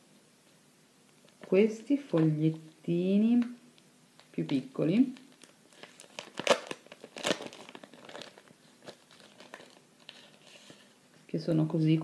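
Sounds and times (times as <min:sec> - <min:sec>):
paper crinkling and rustling: 0:04.2 - 0:11.0.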